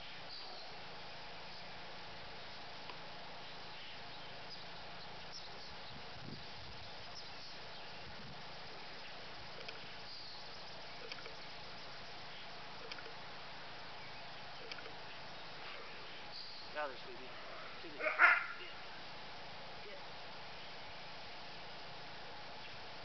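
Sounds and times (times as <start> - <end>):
steady outdoor hiss: 0.0 - 23.0
faint chirps and ticks: 2.4 - 19.0.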